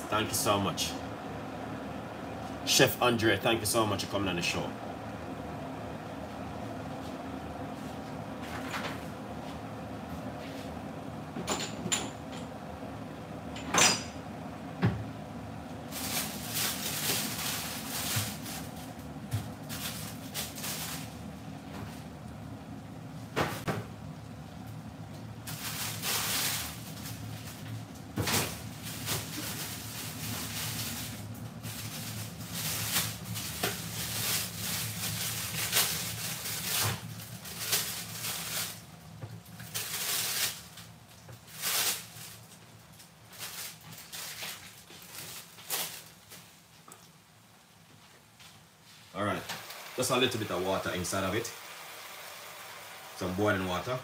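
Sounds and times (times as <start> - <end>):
steady low hum: 0.0 - 54.0
pot sizzling and bubbling: 25.3 - 42.5, 49.5 - 53.8.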